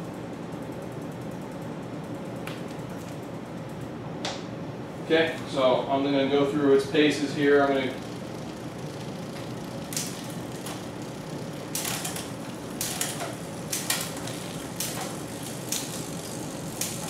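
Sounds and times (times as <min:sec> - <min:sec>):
bicycle chain whirring: 0:06.6 - 0:17.0.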